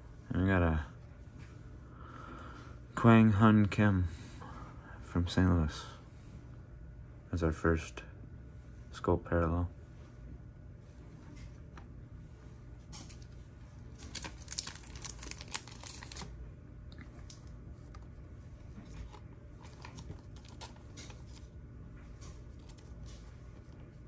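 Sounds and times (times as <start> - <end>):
plastic card sleeve crinkling: 13.0 - 16.4, 17.0 - 23.8.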